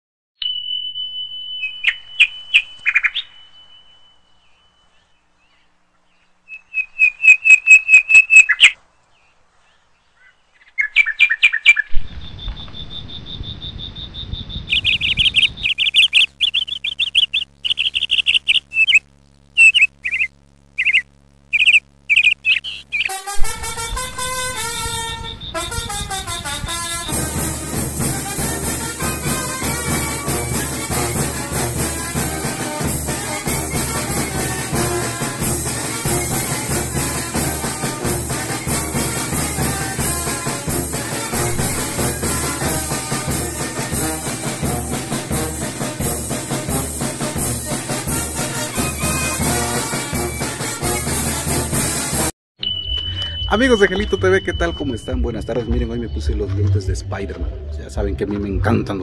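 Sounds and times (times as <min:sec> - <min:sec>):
birds chirping: 0:00.4 - 0:27.7, 0:28.6 - 0:40.2, 0:52.6 - 0:59.0
band music: 0:23.1 - 0:52.3.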